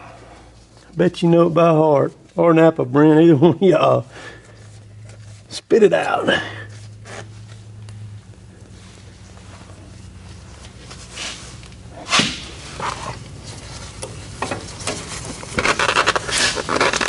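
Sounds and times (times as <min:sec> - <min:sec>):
rag scraping and rubbing engine: 0:04.2 - 0:17.0.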